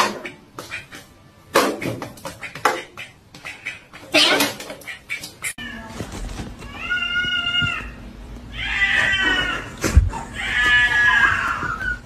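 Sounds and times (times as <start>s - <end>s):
cat meowing: 6.7s - 12.0s.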